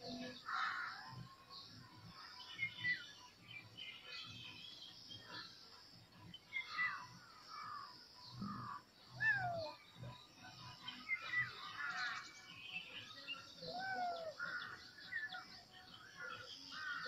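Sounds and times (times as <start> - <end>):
birds chirping: 0.0 - 17.0
kittens meowing: 9.2 - 9.8, 13.7 - 14.4.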